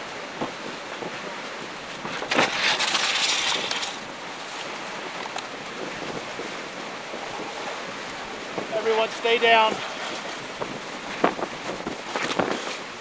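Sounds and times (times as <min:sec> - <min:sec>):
strong wind buffeting a car: 0:00.0 - 0:13.0
driving rain on a car: 0:04.9 - 0:13.0.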